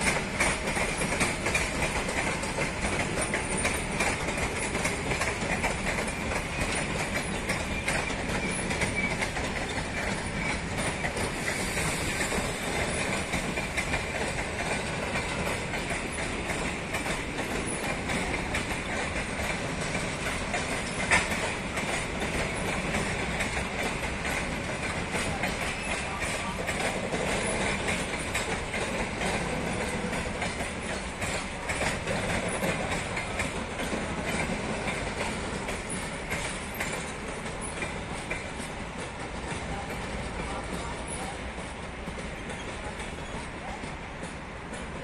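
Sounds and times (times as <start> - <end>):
train wheels clicking over rail joints: 0.0 - 45.0
high brake squeal: 7.7 - 9.2.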